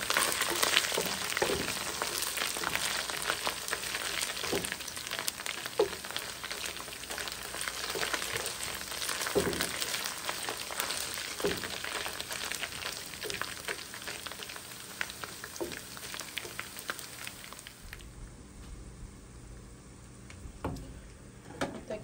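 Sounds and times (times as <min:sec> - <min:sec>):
food sizzling in hot oil: 0:00.0 - 0:18.0.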